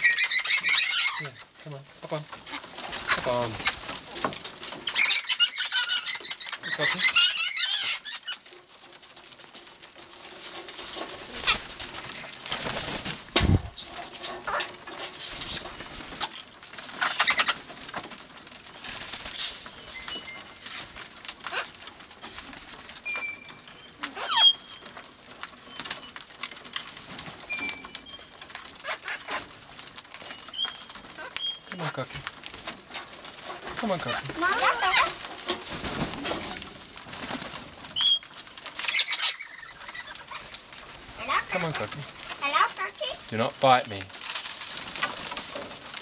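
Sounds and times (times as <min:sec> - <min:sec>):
wings flapping: 0:00.0 - 0:46.0
dull thump: 0:13.4 - 0:13.7.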